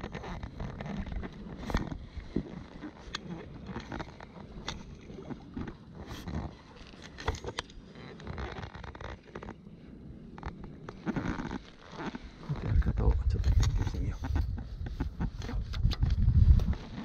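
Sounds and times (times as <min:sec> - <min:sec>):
fishing rod and reel clicks: 0:00.0 - 0:02.0, 0:02.6 - 0:09.6
shallow water sloshing: 0:00.0 - 0:17.0.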